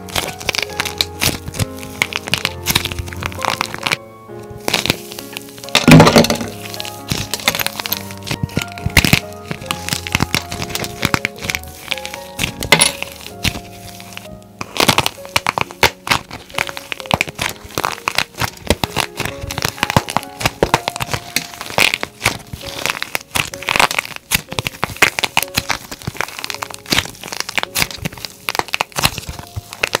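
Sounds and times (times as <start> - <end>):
plaster cracking and crumbling: 0.0 - 30.0.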